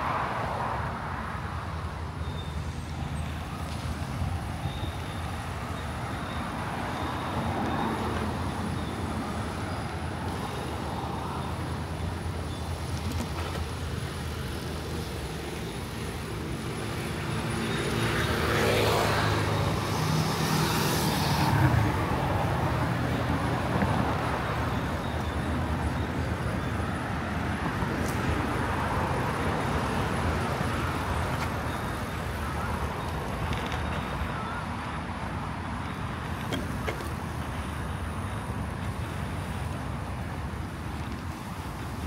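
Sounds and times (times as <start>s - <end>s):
road traffic noise: 0.0s - 42.0s.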